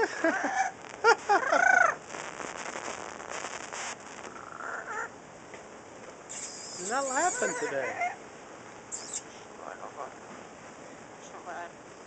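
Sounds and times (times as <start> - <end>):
parrot calling: 0.0 - 2.0, 4.3 - 5.2, 6.3 - 8.2, 8.9 - 9.4.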